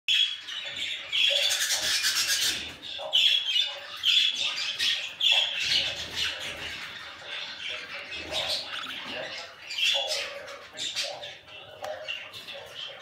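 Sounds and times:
budgerigars chattering calls: 0.1s - 13.0s.

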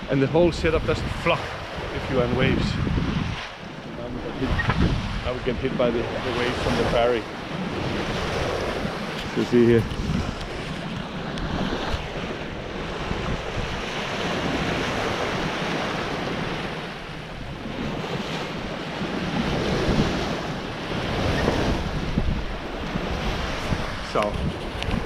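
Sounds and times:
water splashing along a hull: 0.0s - 25.0s
wind buffeting the microphone: 0.0s - 25.0s.

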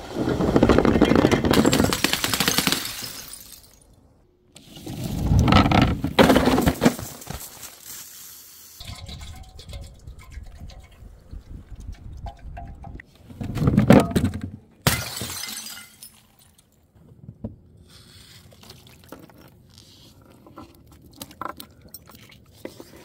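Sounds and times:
glass bottles shattering: 1.0s - 4.0s, 14.8s - 16.6s.

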